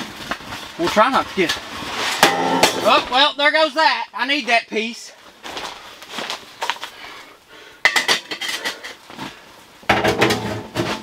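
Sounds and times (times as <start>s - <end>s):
metal stovepipe clinking and clanking: 7.8s - 9.0s.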